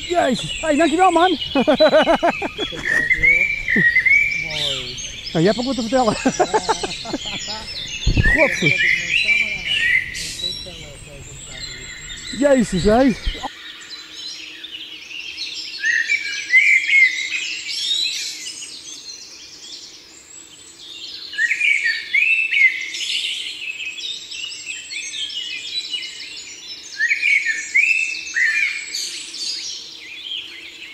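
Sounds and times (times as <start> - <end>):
songbirds singing: 0.0 - 16.2.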